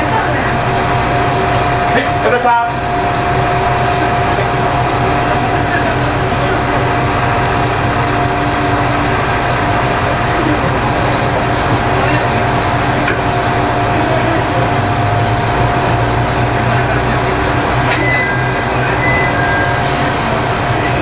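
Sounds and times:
diesel engine idling: 0.0s - 21.0s
short high beeps: 17.9s - 20.4s.

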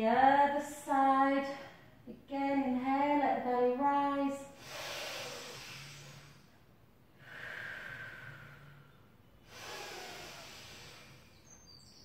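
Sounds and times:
woman breathing deeply: 4.5s - 11.6s.

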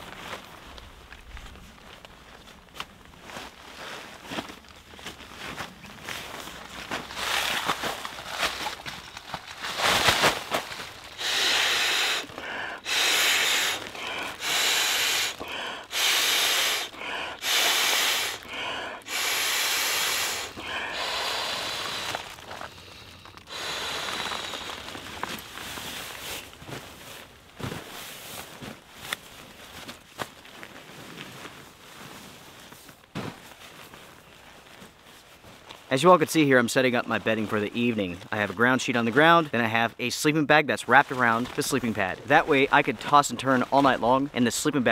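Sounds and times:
nylon rustling: 0.0s - 35.9s, 40.8s - 44.9s
rushes of air blowing pad: 9.7s - 26.6s.

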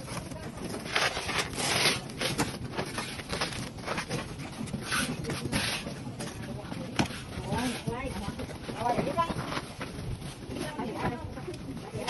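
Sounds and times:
charcoal sticks rustling in a box: 0.0s - 6.4s.

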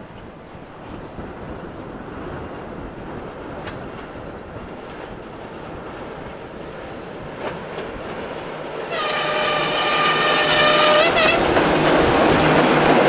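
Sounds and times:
diesel locomotive engine: 0.0s - 13.0s
locomotive horn blast: 8.8s - 12.1s.

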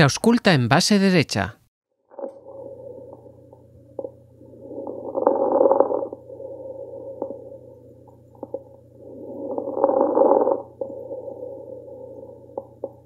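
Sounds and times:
steady low hum: 2.0s - 13.0s
breathing through a stethoscope: 9.0s - 12.8s.

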